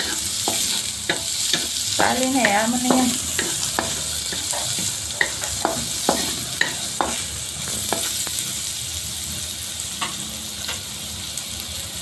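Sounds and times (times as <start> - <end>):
spatula knocking and scraping wok: 0.0 - 8.6
vegetables sizzling in hot oil: 0.0 - 12.0.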